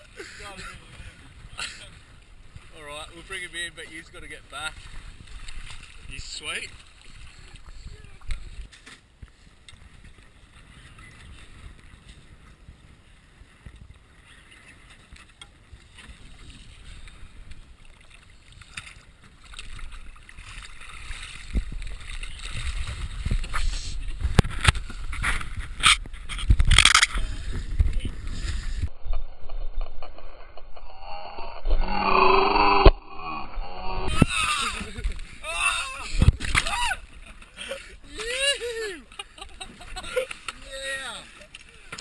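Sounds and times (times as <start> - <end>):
water lapping against boat hull: 0.0 - 28.9
wind on microphone: 21.0 - 37.1.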